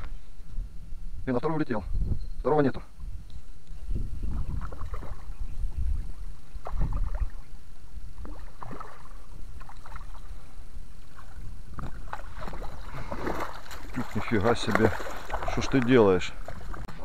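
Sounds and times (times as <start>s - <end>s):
wind rumble on microphone: 0.0s - 17.0s
water splashing and sloshing: 4.3s - 5.4s, 6.1s - 7.5s, 8.1s - 17.0s.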